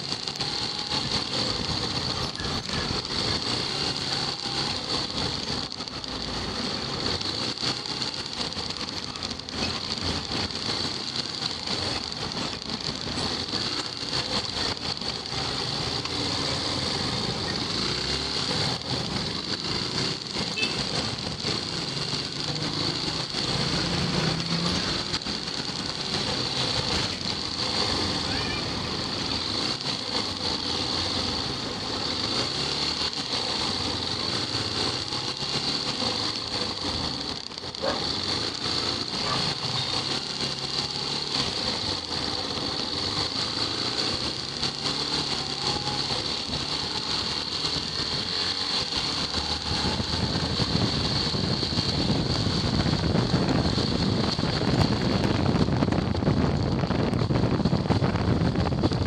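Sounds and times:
motorcycle engine running: 0.0 - 59.0
wind rumble on microphone: 45.4 - 59.0.

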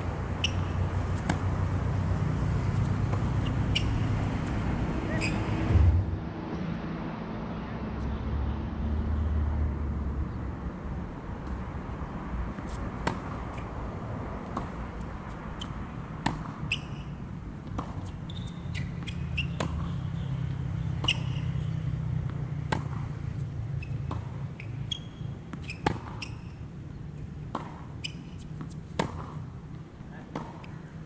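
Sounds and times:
tennis balls hit and bouncing: 0.0 - 6.8, 12.3 - 31.0
steady low rumble: 0.8 - 8.0.

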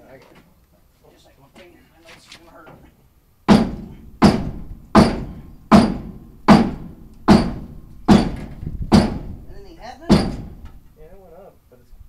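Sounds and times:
hammer striking metal: 3.5 - 9.3, 10.1 - 10.8.

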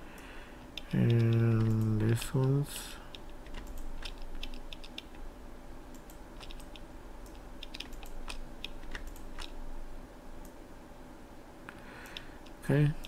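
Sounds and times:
faint steady hum: 0.0 - 13.0
computer mouse clicks: 0.2 - 5.2, 5.9 - 9.6, 12.0 - 12.6.

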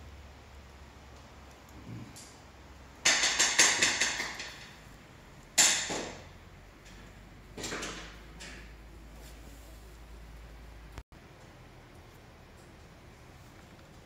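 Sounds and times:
low steady hum: 0.0 - 14.0
sharp ringing knocks: 3.0 - 4.8.

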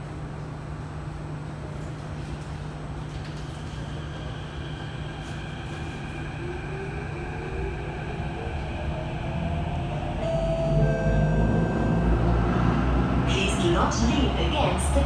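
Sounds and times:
train running hum: 0.0 - 15.0
traction motor whine rising: 4.3 - 13.2.

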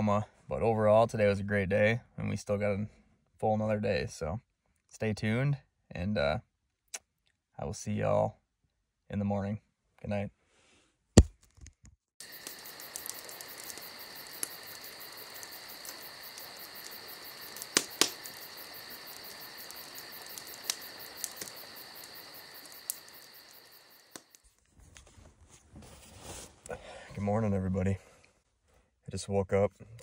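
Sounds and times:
faint clicks: 12.2 - 24.4
night insects chirping: 12.2 - 24.4.

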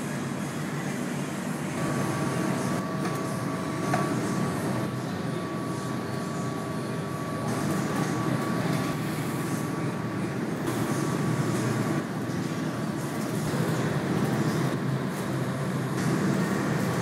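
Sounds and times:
furnace and fans roaring: 0.0 - 17.0.

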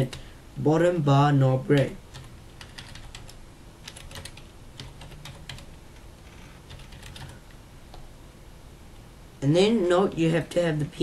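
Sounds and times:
steady low hum: 0.0 - 11.0
keyboard typing: 1.7 - 8.0.

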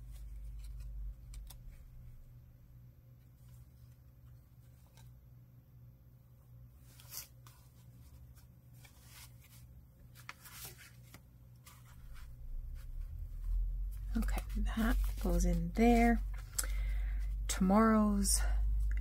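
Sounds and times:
paper and card rustling: 0.0 - 2.2, 6.8 - 17.4
low hum: 0.0 - 3.7, 11.6 - 19.0
low rumble: 11.8 - 19.0.

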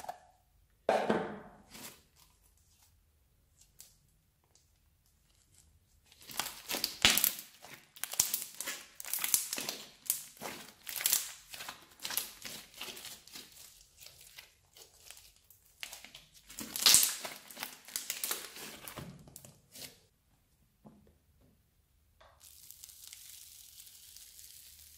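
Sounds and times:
slime crackling as stretched: 5.2 - 19.0, 22.4 - 24.9.

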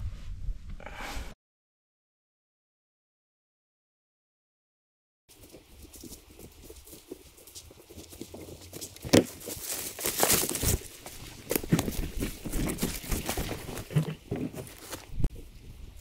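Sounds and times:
boots crunching through dry leaves: 7.4 - 15.2
twig cracking: 8.9 - 13.2.

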